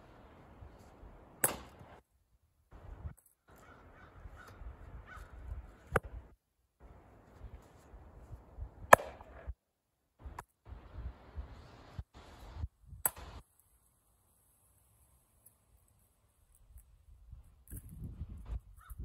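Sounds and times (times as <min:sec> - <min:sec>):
maul splitting firewood: 0:00.3 - 0:02.0, 0:08.7 - 0:09.5.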